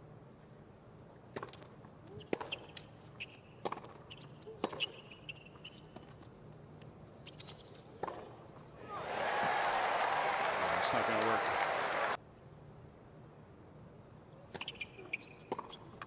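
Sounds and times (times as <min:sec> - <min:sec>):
shoes squeaking on court: 0:02.1 - 0:08.4, 0:14.5 - 0:16.0
tennis ball hits and bounces: 0:03.6 - 0:05.0, 0:08.0 - 0:08.4, 0:14.5 - 0:16.0.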